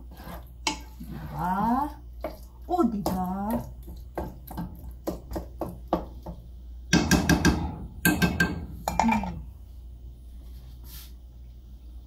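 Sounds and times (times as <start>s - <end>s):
wooden spoon knocking on metal pot: 2.2s - 9.4s.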